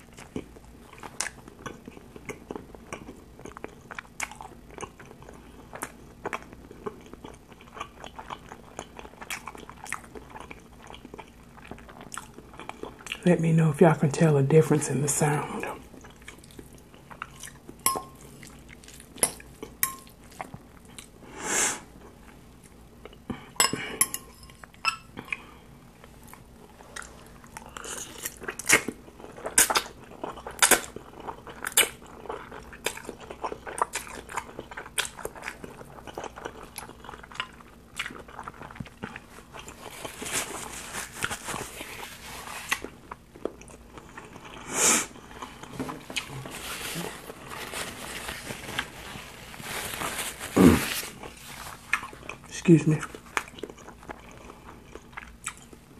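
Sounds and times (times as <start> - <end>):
wet chewing mouth sounds: 0.0 - 13.2, 26.2 - 46.5, 50.5 - 55.9
fork clinking against glass bowl: 17.8 - 18.2, 19.2 - 20.1
person slurping noodles: 50.5 - 51.1.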